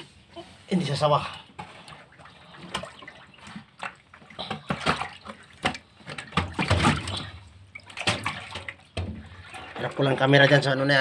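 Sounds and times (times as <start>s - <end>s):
water splashing and sloshing: 0.0s - 11.0s
water drips: 1.3s - 10.8s.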